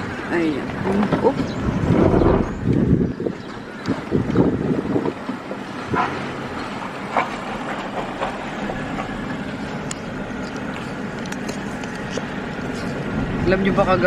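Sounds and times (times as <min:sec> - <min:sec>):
car cabin road and engine noise: 0:00.0 - 0:14.0.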